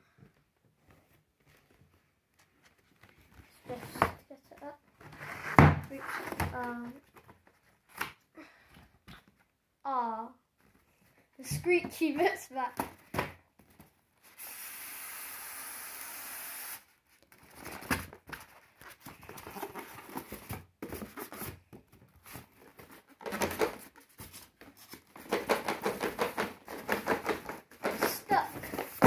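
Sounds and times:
cardboard sliding against cardboard: 5.0s - 6.5s
cardboard box rustling: 17.4s - 29.0s.

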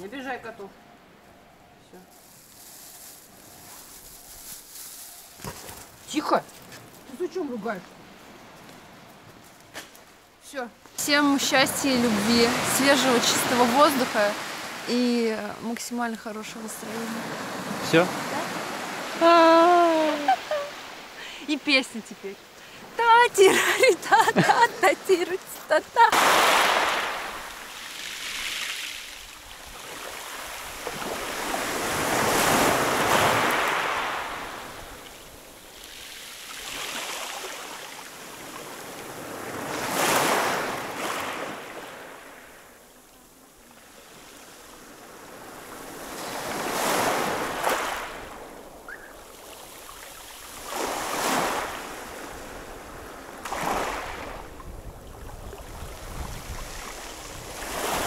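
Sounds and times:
waves breaking on pebble beach: 11.0s - 15.3s, 16.2s - 21.2s, 22.8s - 42.6s, 43.8s - 54.7s, 55.7s - 58.0s.

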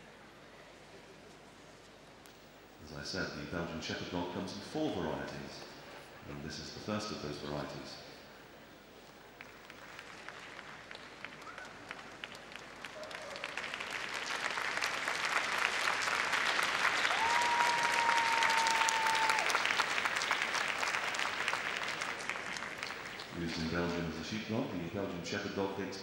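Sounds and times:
audience applauding: 9.4s - 24.0s.

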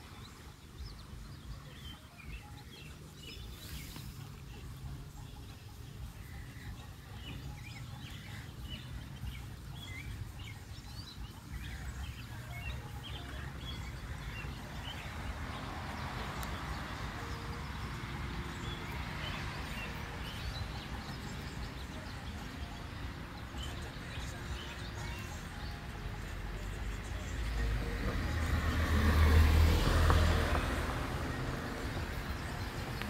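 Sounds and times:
birds chirping: 0.0s - 33.0s
light rain on pavement: 14.2s - 20.3s, 28.0s - 33.0s.

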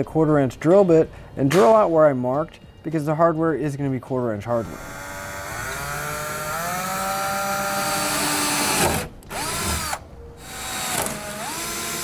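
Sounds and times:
cordless drill whining: 4.6s - 12.0s.

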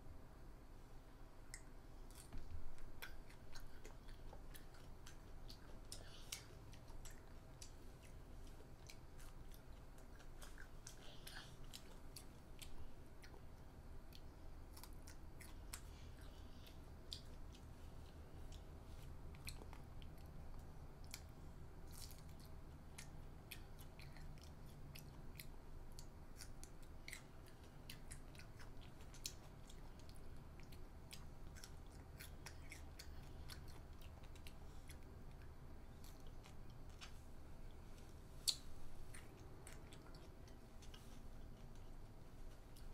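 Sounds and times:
low steady hum: 0.0s - 42.9s
child chewing crunchy food: 1.4s - 42.9s.

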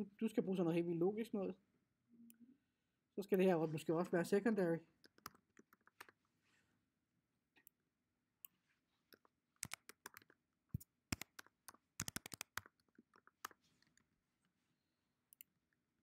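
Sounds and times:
computer keyboard typing: 5.1s - 6.2s, 9.1s - 14.0s.

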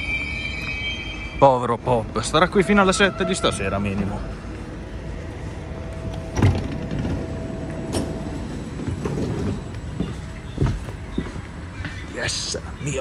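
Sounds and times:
sliding train door opening: 6.0s - 10.0s.

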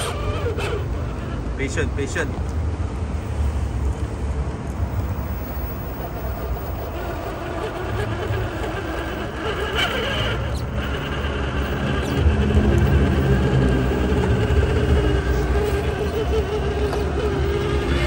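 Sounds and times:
rc car motor and gears whining: 0.0s - 2.2s, 5.2s - 18.0s
steady low rumble: 11.2s - 16.6s.

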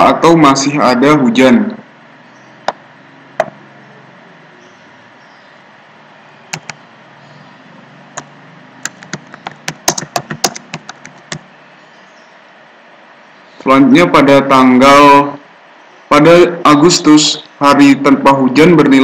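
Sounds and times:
computer keyboard typing: 6.5s - 6.8s, 8.2s - 11.5s.

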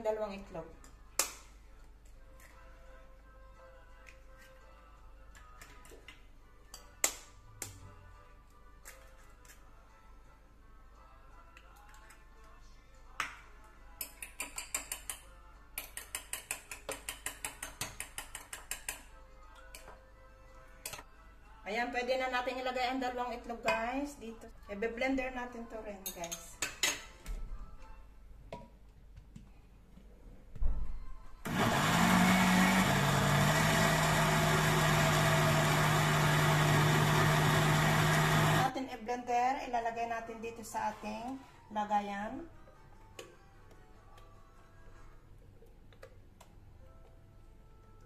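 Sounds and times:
fork tapping egg shell: 15.8s - 19.0s
blender motor running: 31.5s - 38.7s.

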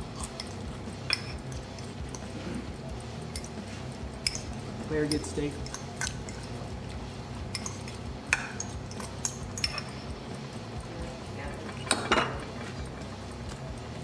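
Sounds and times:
low room hum: 0.0s - 14.0s
cutlery clinking on plates: 0.2s - 2.3s, 4.2s - 6.5s, 7.5s - 10.0s, 11.6s - 13.0s
cutlery clatter: 7.5s - 10.0s, 11.6s - 13.1s.

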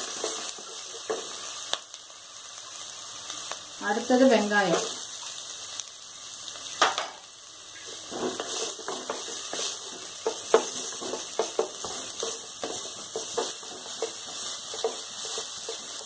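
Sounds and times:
spatula scraping a pan: 0.0s - 1.4s, 7.8s - 16.0s
onions sizzling in oil: 0.0s - 16.0s
spatula knocking against pan: 10.2s - 15.8s.

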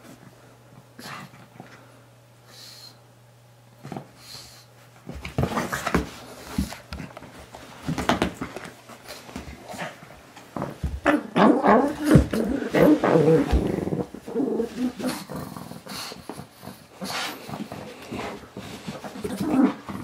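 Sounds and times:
dog growling in play: 11.0s - 18.4s, 19.0s - 20.0s.

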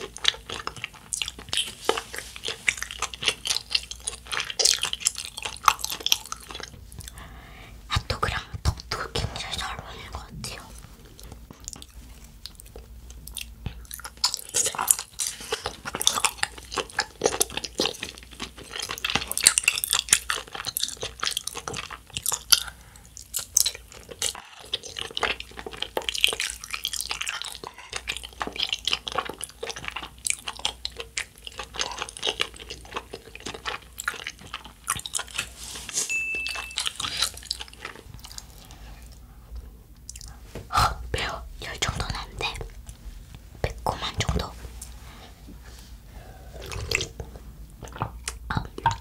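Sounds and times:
wet mouth clicks and smacks: 40.0s - 40.4s, 46.8s - 49.0s.

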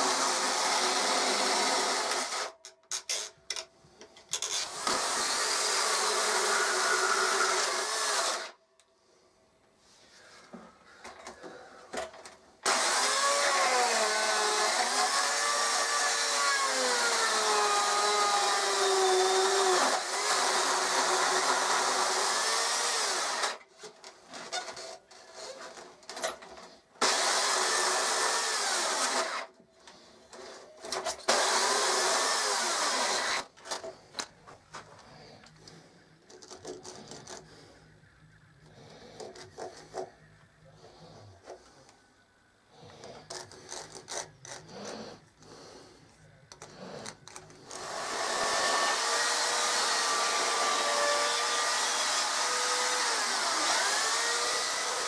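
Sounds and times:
electric chainsaw cutting wood: 0.0s - 2.6s, 4.6s - 8.6s, 12.6s - 23.6s, 27.0s - 29.5s, 31.3s - 33.5s, 47.7s - 55.0s.

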